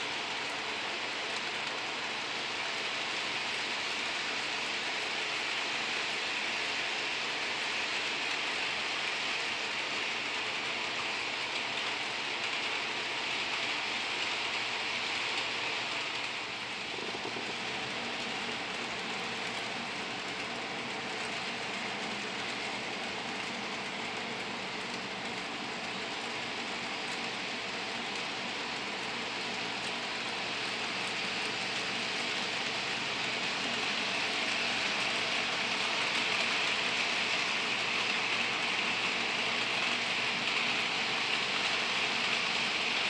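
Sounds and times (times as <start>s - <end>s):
model train rolling on track: 0.0s - 43.0s.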